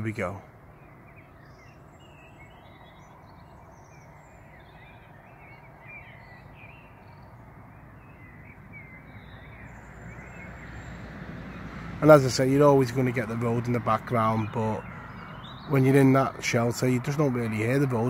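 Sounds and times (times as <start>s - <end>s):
birds singing: 0.0s - 18.0s
road traffic hum: 0.0s - 18.0s.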